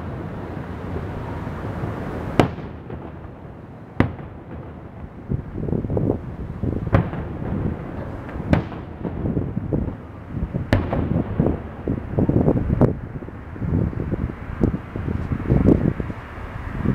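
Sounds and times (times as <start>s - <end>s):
low steady rumble: 0.0s - 16.9s
firework shells bursting: 1.0s - 12.5s.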